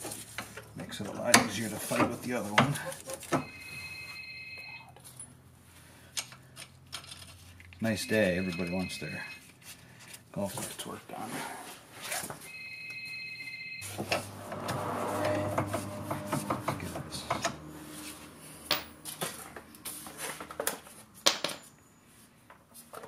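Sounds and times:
machine whine and hum: 0:13.8 - 0:20.8.

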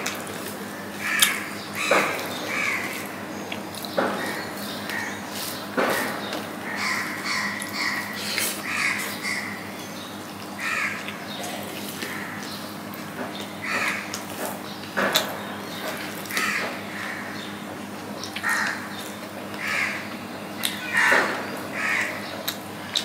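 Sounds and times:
crows cawing: 0:00.7 - 0:03.3, 0:04.0 - 0:09.7, 0:10.6 - 0:12.6, 0:13.6 - 0:14.2, 0:16.3 - 0:17.6, 0:18.4 - 0:22.4
eating by hand clicks and smacks: 0:01.2 - 0:06.5, 0:10.4 - 0:17.1, 0:17.8 - 0:19.8, 0:20.6 - 0:23.0.

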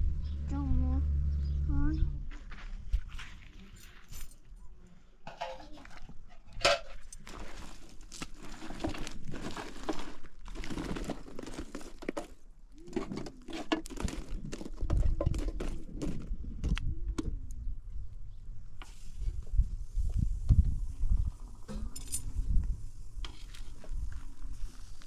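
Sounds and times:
low rumble: 0:00.0 - 0:02.9
rustling and crinkling: 0:02.3 - 0:04.5, 0:05.3 - 0:16.9, 0:21.7 - 0:25.0.

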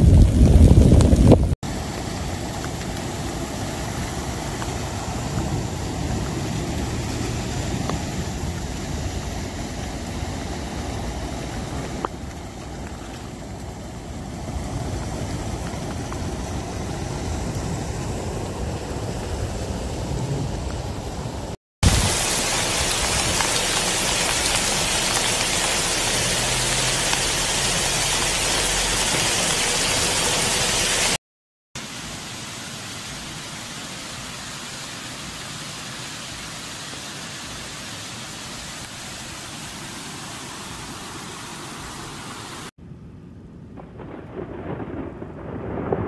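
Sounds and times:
water rushing over boulders: 0:00.0 - 0:31.2, 0:31.8 - 0:42.7
flood water rushing: 0:01.6 - 0:31.2, 0:31.8 - 0:42.7
rumble of thunder: 0:14.8 - 0:27.0, 0:43.0 - 0:46.0.

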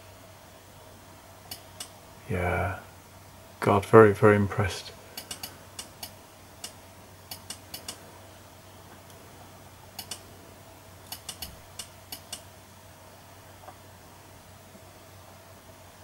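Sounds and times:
faint steady hum: 0:00.0 - 0:16.0
computer mouse buttons clicking: 0:05.2 - 0:08.0, 0:10.0 - 0:10.2, 0:11.1 - 0:12.4.

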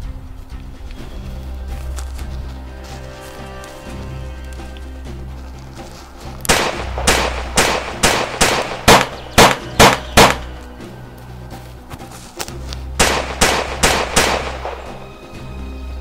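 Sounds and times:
soundtrack music with low drone: 0:00.0 - 0:16.0
rapid pistol shots: 0:06.5 - 0:10.5, 0:13.0 - 0:15.0.

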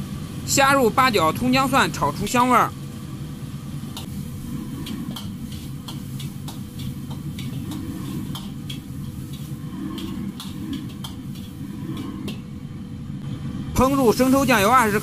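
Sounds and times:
gas burner roaring: 0:00.0 - 0:15.0
ladle scraping metal wok: 0:04.0 - 0:12.5.

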